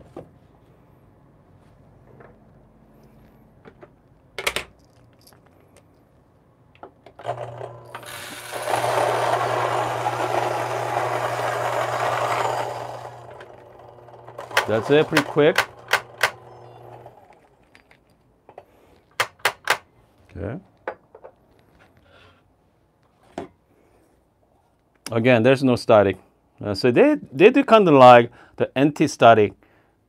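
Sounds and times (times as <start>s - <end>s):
coffee grinder grinding beans: 7.2s - 17.6s.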